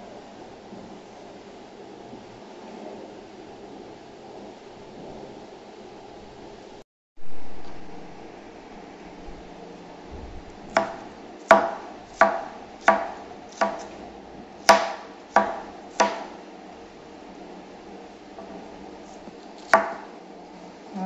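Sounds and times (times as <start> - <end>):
cleaver chopping on wooden board: 10.7 - 14.0, 14.6 - 16.4, 19.6 - 20.1.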